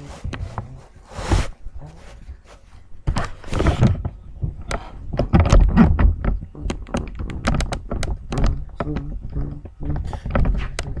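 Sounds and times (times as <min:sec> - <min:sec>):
heavy thumps: 0:03.0 - 0:11.0.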